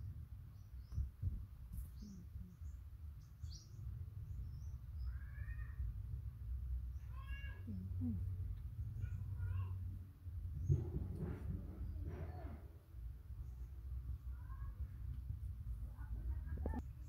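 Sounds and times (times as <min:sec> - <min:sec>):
low rumble: 0:07.6 - 0:17.0.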